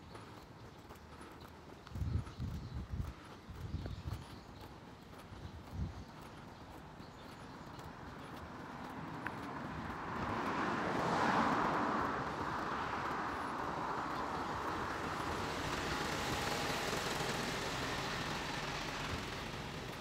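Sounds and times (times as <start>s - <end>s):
car passing: 6.3s - 20.0s.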